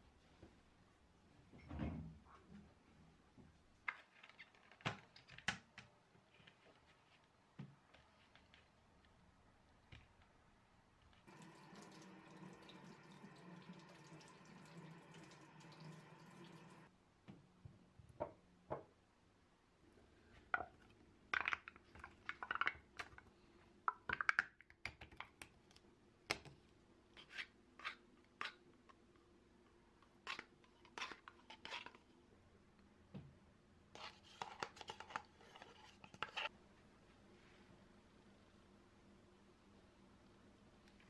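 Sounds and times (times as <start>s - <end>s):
tap running water into sink: 11.3s - 16.9s.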